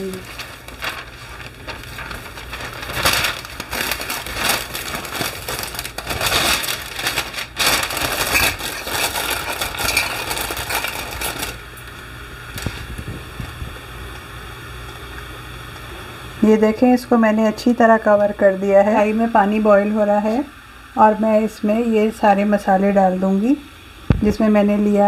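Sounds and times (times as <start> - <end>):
baking paper crinkling: 0.0 - 11.8, 12.5 - 13.8.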